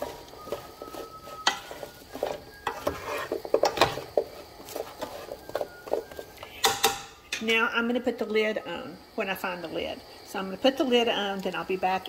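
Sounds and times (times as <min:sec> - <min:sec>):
spatula scraping pan: 0:00.0 - 0:06.7
fat sizzling in skillet: 0:00.0 - 0:12.0.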